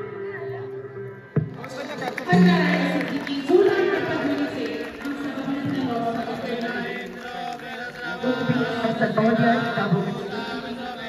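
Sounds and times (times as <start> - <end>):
voices chanting together: 2.3 - 11.0.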